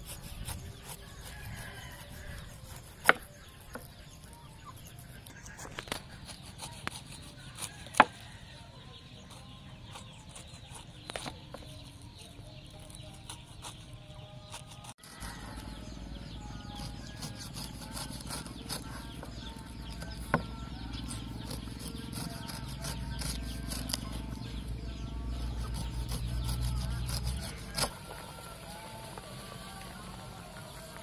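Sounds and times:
knife cutting pineapple: 5.0s - 8.4s, 9.3s - 15.8s, 16.6s - 24.6s, 25.3s - 28.1s.

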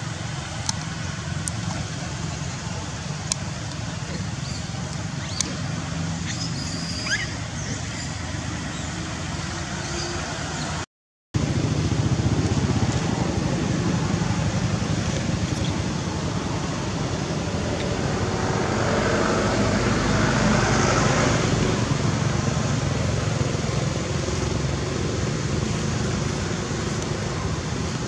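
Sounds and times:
steady rumbling background noise: 11.4s - 28.0s.

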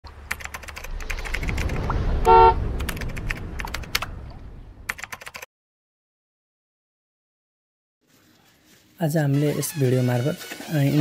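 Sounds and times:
low rumble: 0.1s - 5.0s
rapid sharp clicks: 0.3s - 2.0s, 2.8s - 4.1s, 4.9s - 5.5s
short horn toot: 2.2s - 2.6s.

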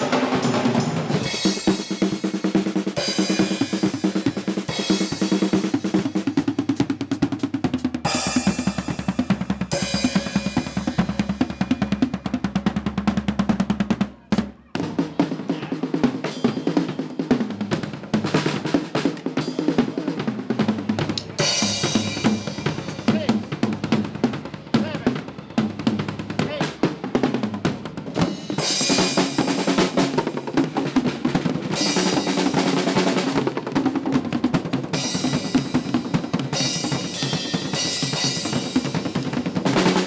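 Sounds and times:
cymbal crashes: 0.0s - 2.3s
drum solo: 0.0s - 40.0s.

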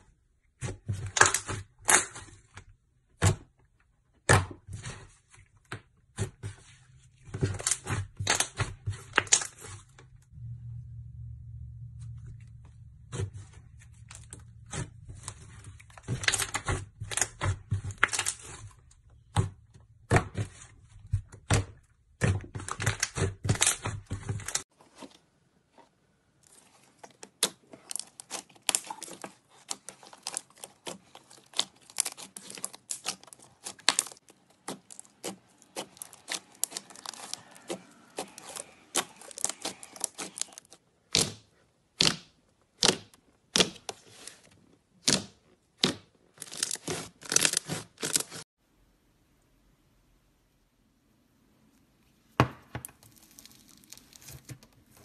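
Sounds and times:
hands squishing slime: 26.5s - 43.9s.

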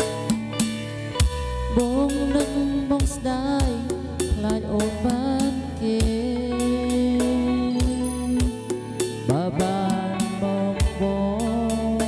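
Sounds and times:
backing track with drums: 0.0s - 12.0s
man singing with vibrato: 5.2s - 12.0s.

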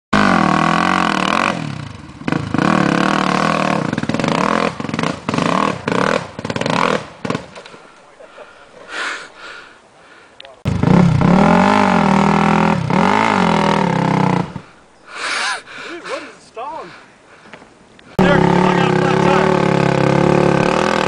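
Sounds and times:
atv engine revving: 0.2s - 7.7s, 10.6s - 14.8s, 18.1s - 21.0s.

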